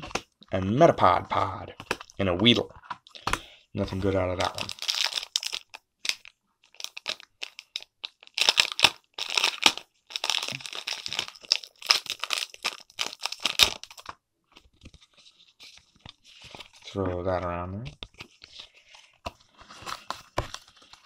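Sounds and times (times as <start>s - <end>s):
foil wrapper crinkling and tearing: 4.4s - 14.1s.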